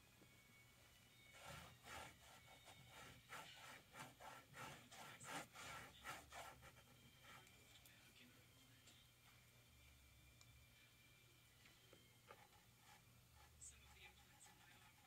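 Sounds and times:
scratchy rubbing strokes on canvas: 0:01.2 - 0:07.5, 0:12.4 - 0:15.0.

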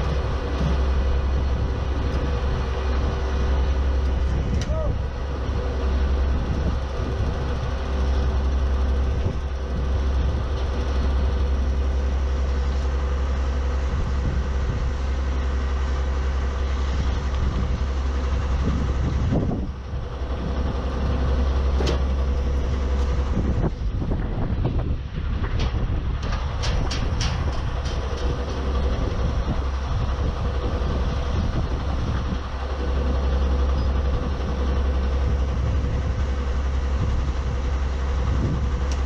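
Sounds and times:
drilling rig engine droning: 0:00.0 - 0:39.0
metal knocks and clanks: 0:25.2 - 0:29.3.

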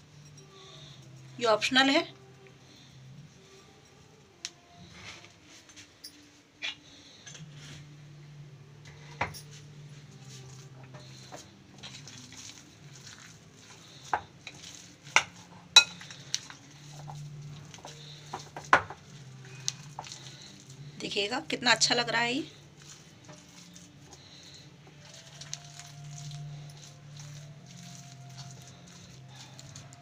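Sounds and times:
spoon stirring thick batter: 0:09.5 - 0:30.0
spoon clinking against glass: 0:15.2 - 0:16.2.

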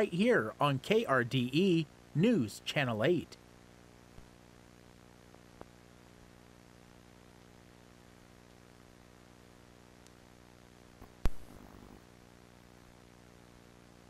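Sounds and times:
faint static hiss: 0:00.0 - 0:14.0
low electrical hum: 0:00.0 - 0:14.0
brief crackle: 0:11.0 - 0:12.0.

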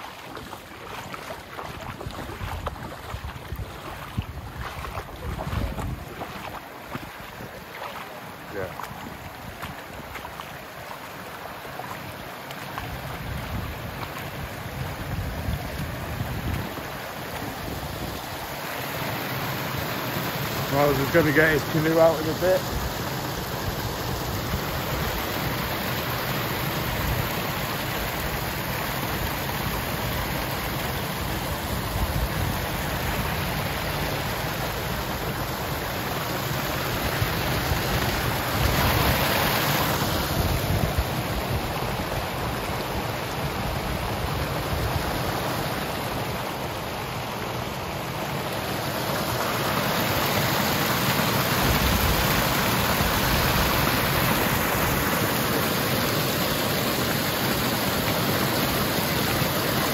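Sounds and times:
running floodwater rushing: 0:00.0 - 0:59.9
wind rumbling on microphone: 0:00.3 - 0:07.7, 0:12.9 - 0:18.5, 0:36.9 - 0:45.4.

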